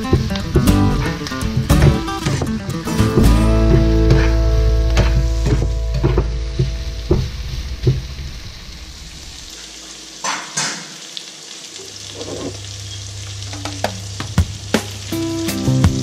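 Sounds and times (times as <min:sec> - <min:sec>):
vegetables sizzling in a frying pan: 0:00.0 - 0:16.0.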